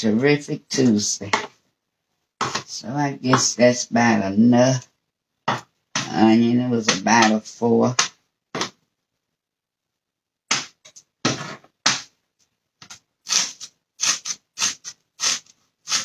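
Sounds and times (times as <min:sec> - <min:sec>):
knife chopping on cutting board: 0:02.4 - 0:02.7.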